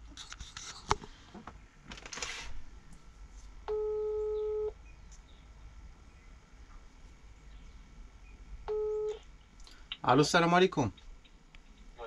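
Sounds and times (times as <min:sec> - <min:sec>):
phone ringback beep: 0:03.7 - 0:04.7, 0:08.7 - 0:09.2.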